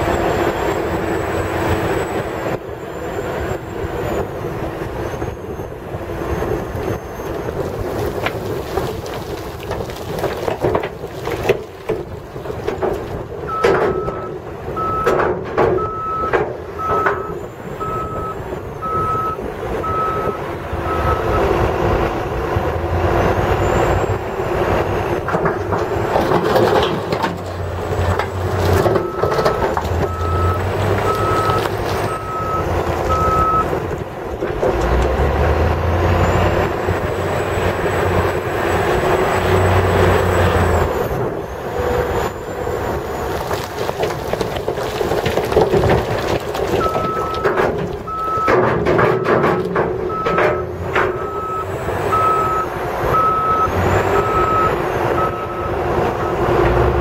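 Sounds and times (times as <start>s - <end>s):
diesel engine under load: 0.0s - 57.0s
rock crashing into truck bed: 7.6s - 14.2s, 25.3s - 32.2s, 43.3s - 51.3s.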